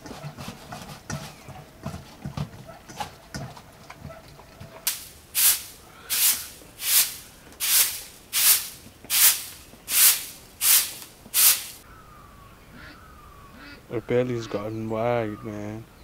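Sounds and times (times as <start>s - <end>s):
broom sweeping earth floor: 4.9s - 11.8s.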